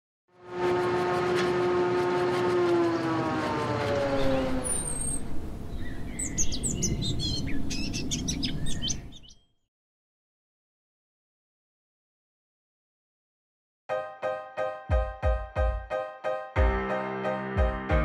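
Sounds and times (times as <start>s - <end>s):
humming tone sliding down: 0.4s - 5.7s
birds chirping: 3.6s - 9.5s.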